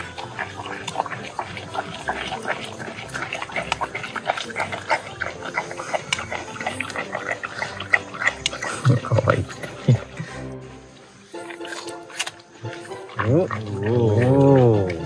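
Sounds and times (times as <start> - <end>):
animal chewing watermelon: 0.0 - 15.0.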